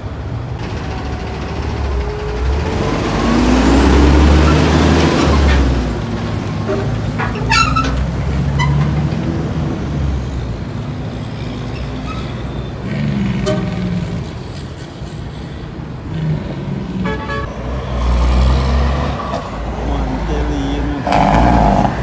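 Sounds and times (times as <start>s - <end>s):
truck engine driving past: 0.0s - 14.8s.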